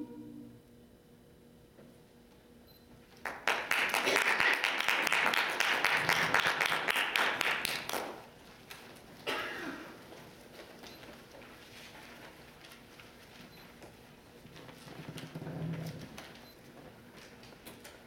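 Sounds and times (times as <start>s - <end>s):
audience applause: 3.2s - 8.2s.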